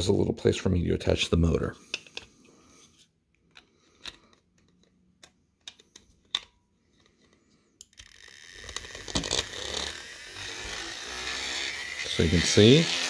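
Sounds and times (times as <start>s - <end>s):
small electric motor whirring: 7.9s - 13.0s.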